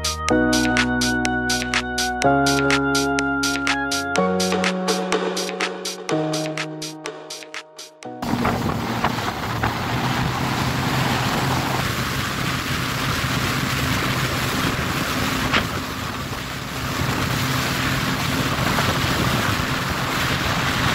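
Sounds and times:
low engine hum: 8.2s - 20.9s
water rushing: 8.2s - 20.9s
wind noise on microphone: 8.2s - 20.9s.

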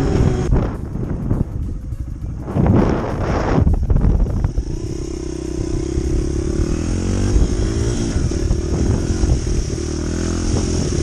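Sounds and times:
dirt bike engine revving: 0.0s - 0.8s, 2.4s - 11.0s.

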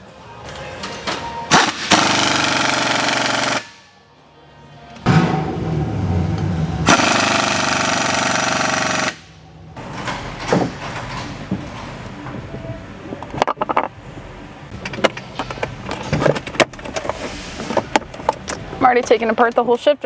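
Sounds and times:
pneumatic impact wrench hammering: 1.5s - 3.8s, 6.9s - 9.3s.

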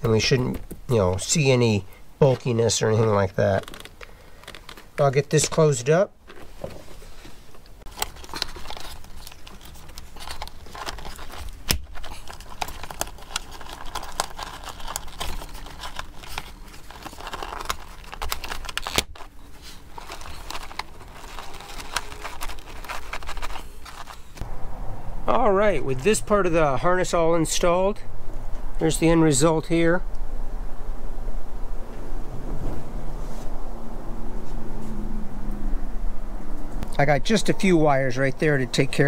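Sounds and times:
wires rustling in plastic channel: 0.0s - 24.4s.

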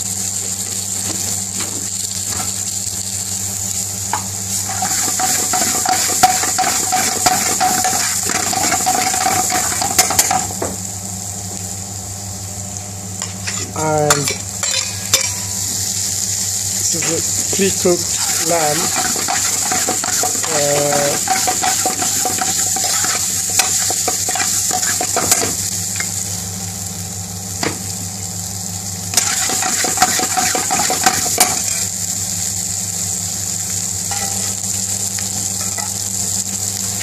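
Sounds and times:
steady low hum: 0.0s - 36.7s
food sizzling in frying pan: 0.0s - 37.0s
metal spoon scraping pan: 4.7s - 10.5s, 18.1s - 25.6s.

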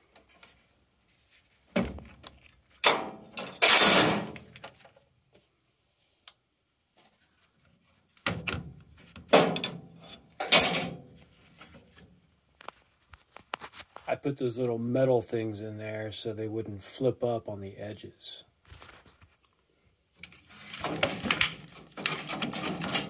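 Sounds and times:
sheet metal clunks: 9.3s - 11.0s.

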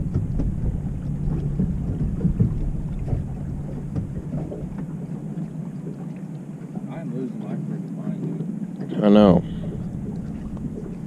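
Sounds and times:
low rumble: 0.0s - 5.6s, 9.3s - 11.0s
low motor drone: 0.0s - 11.0s.

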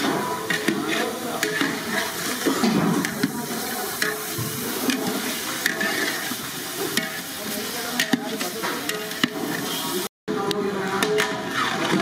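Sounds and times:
wood fire hissing: 0.9s - 10.1s.

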